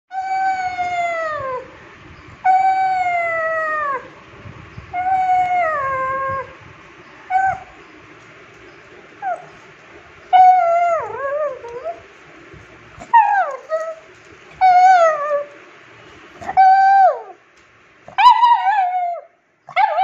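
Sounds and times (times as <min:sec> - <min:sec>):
dog whining: 0:00.1 - 0:01.8, 0:02.4 - 0:04.2, 0:04.9 - 0:06.6, 0:07.2 - 0:07.8, 0:09.2 - 0:12.2, 0:13.0 - 0:15.6, 0:16.4 - 0:17.4, 0:18.1 - 0:20.0
dog yipping: 0:07.2 - 0:07.8, 0:09.2 - 0:09.7, 0:10.3 - 0:12.0, 0:13.0 - 0:15.6, 0:16.4 - 0:17.4, 0:18.1 - 0:20.0.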